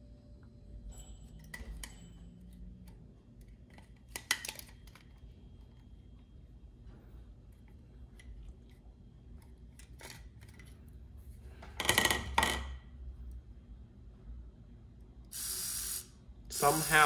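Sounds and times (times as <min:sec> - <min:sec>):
electric toothbrush motor buzzing: 0:15.4 - 0:17.0.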